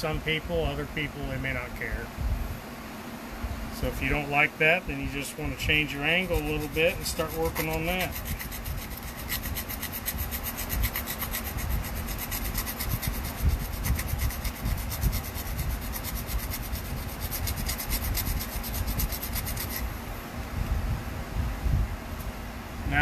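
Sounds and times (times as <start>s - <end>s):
knife blade scraping on sandpaper: 5.1s - 19.9s.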